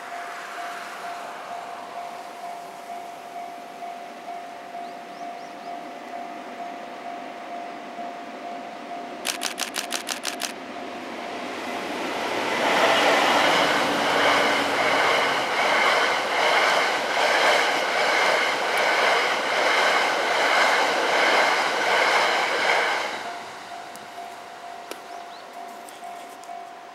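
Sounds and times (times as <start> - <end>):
sharp clicks: 9.2 - 10.6
train wheel clatter: 9.2 - 10.6, 12.6 - 26.6.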